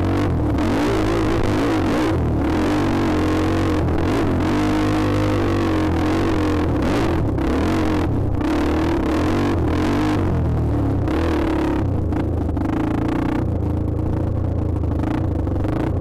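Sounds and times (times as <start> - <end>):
dirt bike engine revving: 0.0 - 10.4.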